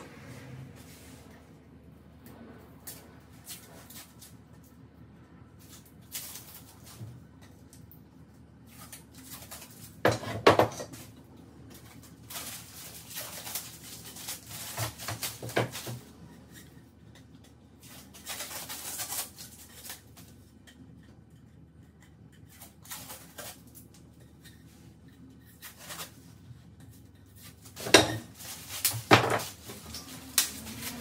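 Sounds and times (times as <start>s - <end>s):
scraping and rustling: 11.7s - 31.0s.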